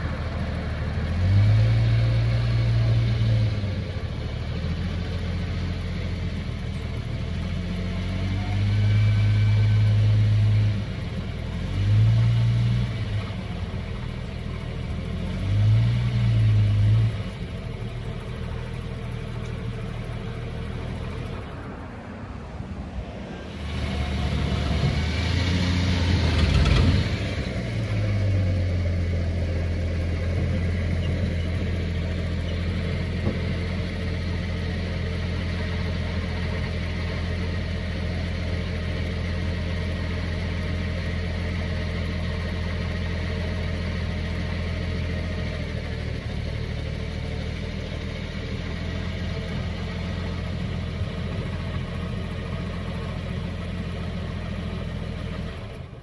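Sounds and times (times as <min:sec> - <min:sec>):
car engine revving and idling: 0:00.0 - 0:56.0.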